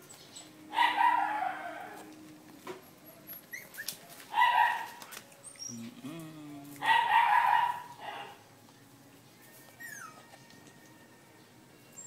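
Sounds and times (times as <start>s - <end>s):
puppies whining and yelping: 2.8s - 5.9s, 9.5s - 10.6s.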